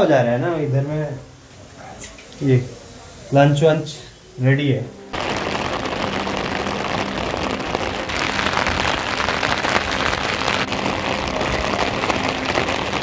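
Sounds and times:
heavy rain on concrete roof: 0:05.0 - 0:13.0.

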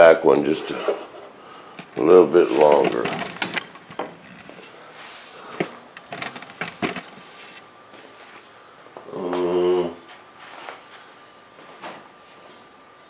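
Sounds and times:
objects knocking on a workbench: 0:05.6 - 0:07.2
person humming: 0:09.1 - 0:10.0.

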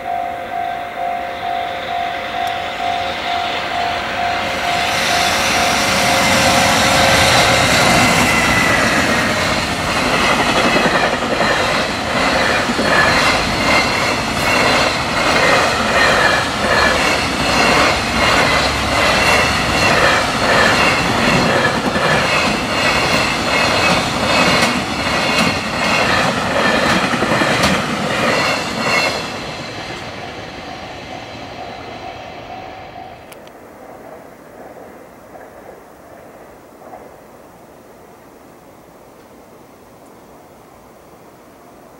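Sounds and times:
level crossing alarm ringing: 0:00.0 - 0:08.2
freight train passing: 0:00.0 - 0:38.7.

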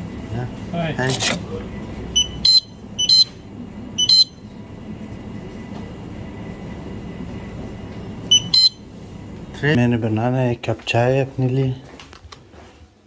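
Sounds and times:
steady low hum: 0:00.0 - 0:13.0
checkout scanner beeps: 0:02.1 - 0:05.1, 0:08.2 - 0:09.0.

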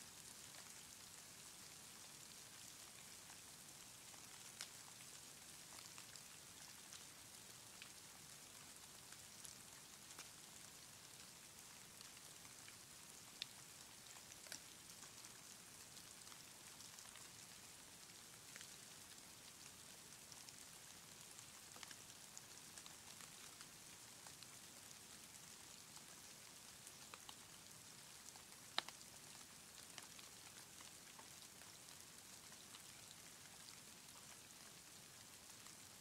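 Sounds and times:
soft high hiss of snow: 0:00.0 - 0:01.6.

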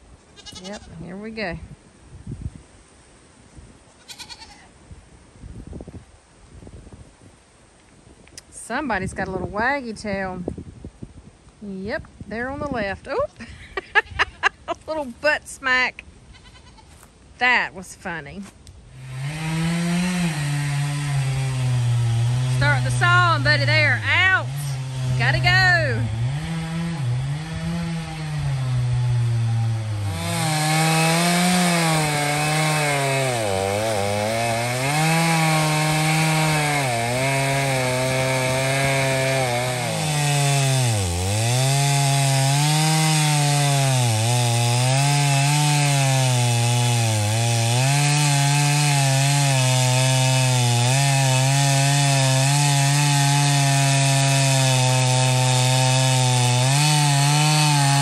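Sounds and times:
chainsaw cutting log: 0:18.9 - 0:58.0.

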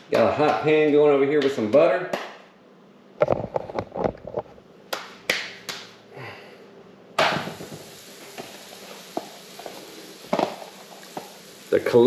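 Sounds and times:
dough sizzling in butter: 0:07.3 - 0:12.0.

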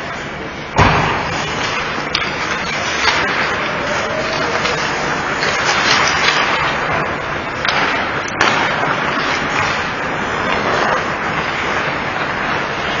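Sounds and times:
sharp knock: 0:00.8 - 0:01.4
hockey sticks and puck clacking: 0:00.8 - 0:13.0.

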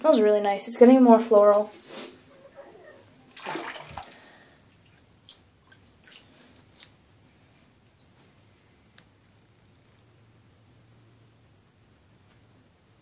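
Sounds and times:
faint water swish: 0:01.5 - 0:06.9.

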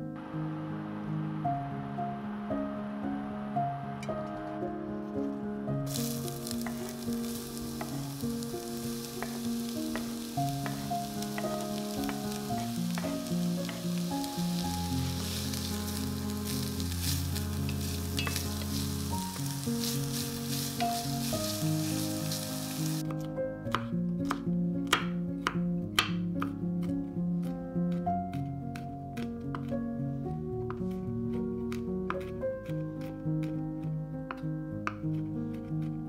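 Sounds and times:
soft background music: 0:00.0 - 0:36.0
food sizzling in oil: 0:05.9 - 0:23.0.

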